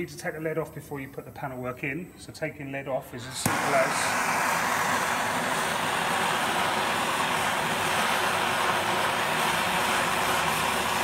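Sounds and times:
blowtorch hissing: 3.0 - 11.0.

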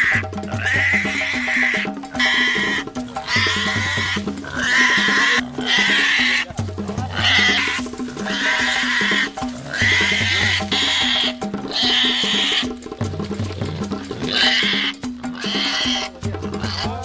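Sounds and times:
background music with beat: 0.0 - 17.0
pig squealing: 0.0 - 17.0.

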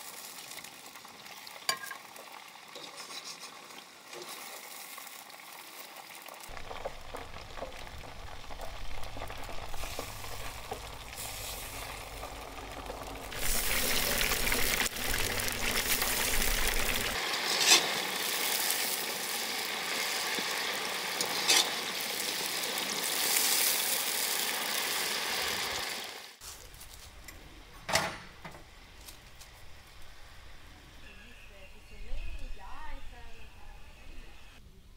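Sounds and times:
food sizzling in frying: 0.0 - 26.6.

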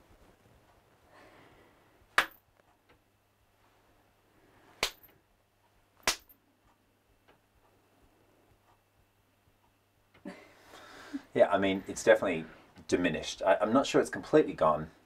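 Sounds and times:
hand claps: 2.2 - 2.4, 4.8 - 5.1, 6.0 - 6.4.

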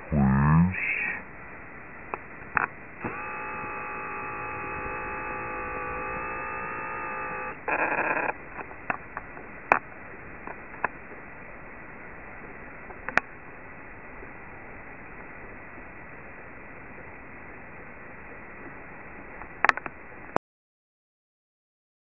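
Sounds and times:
radio multi-pitch tone: 0.0 - 1.3, 2.6 - 8.8
radio static burst: 2.0 - 11.6
radio clicks: 2.1 - 11.0, 19.4 - 20.0.

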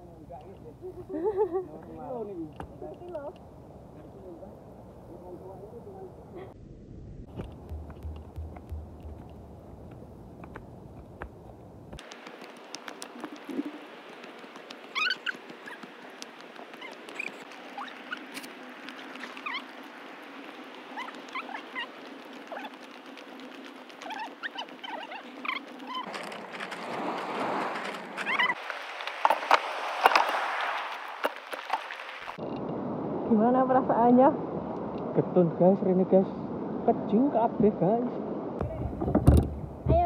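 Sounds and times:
sharp clicks: 7.3 - 11.3
birds chirping: 7.4 - 26.8
forest ambience hiss: 11.5 - 34.8
surf breaking on pebbles: 15.4 - 32.4.

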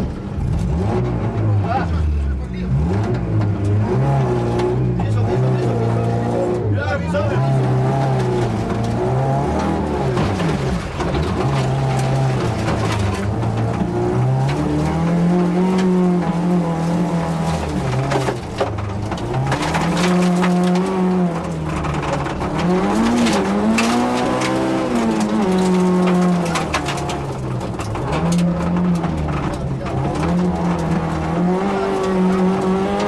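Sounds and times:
car engine revving: 0.0 - 33.0
stones clattering on car underside: 7.9 - 33.0.

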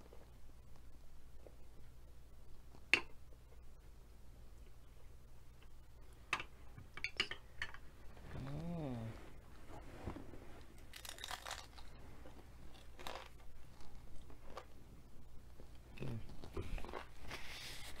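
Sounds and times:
faint low hum: 0.0 - 18.0
person chewing crunchy food: 10.8 - 14.8, 15.7 - 17.6.

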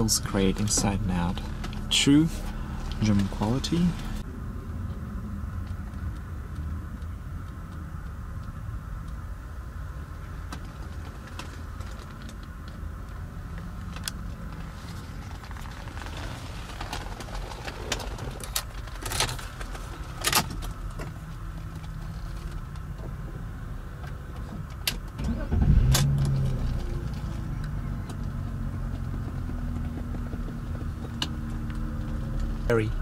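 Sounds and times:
car engine idling: 0.0 - 33.0.

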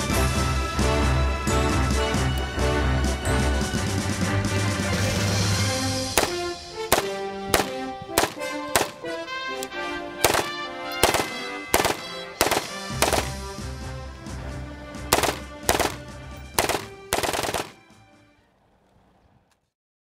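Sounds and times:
background music: 0.0 - 18.8
rifle shots: 6.1 - 9.2, 10.2 - 13.6, 15.1 - 17.9.

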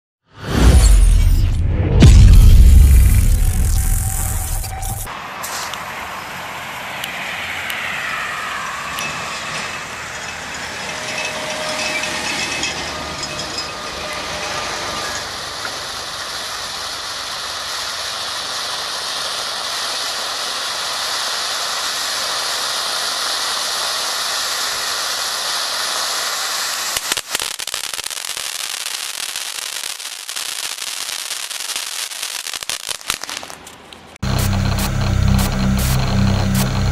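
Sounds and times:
firework fountain hissing: 2.0 - 36.9
crackling pops: 26.6 - 28.4, 32.4 - 36.9.

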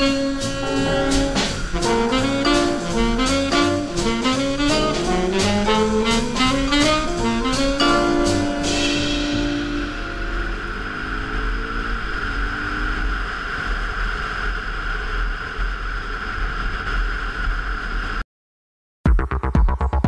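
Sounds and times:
electronic music with pulsing beat: 0.0 - 10.1, 19.1 - 20.0
motorcycle engine: 0.0 - 17.1.

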